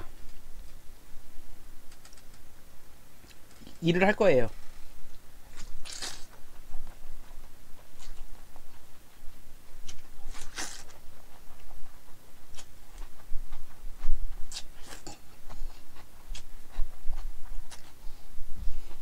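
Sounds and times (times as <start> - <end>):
chewing: 5.1 - 19.0.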